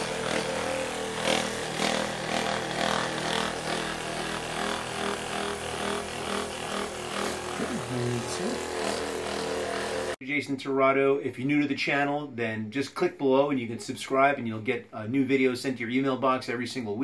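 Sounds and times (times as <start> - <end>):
massage gun motor whine: 0.0 - 10.2.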